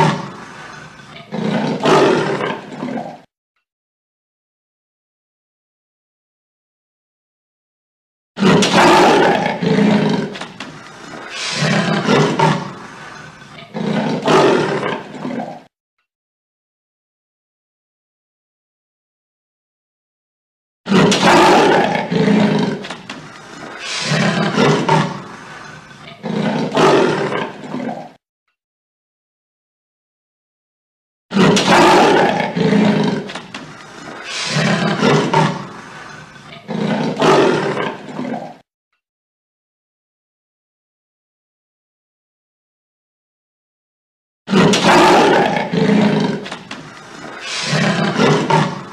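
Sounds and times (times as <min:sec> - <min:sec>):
tiger roaring: 0:00.0 - 0:03.3, 0:08.4 - 0:15.7, 0:20.9 - 0:28.2, 0:31.3 - 0:38.6, 0:44.5 - 0:48.9.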